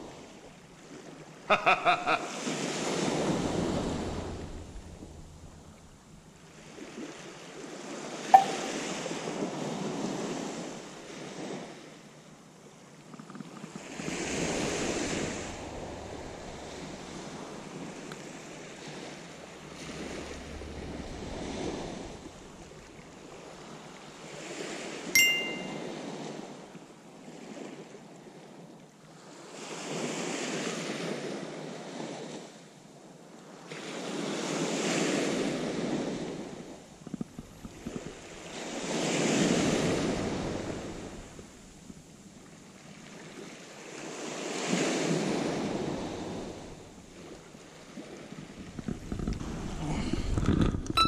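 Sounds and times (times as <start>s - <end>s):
small waves on pebble beach: 2.3s - 8.2s, 8.8s - 25.1s, 27.0s - 50.6s
sharp metallic ding: 8.4s - 8.8s, 25.2s - 25.9s.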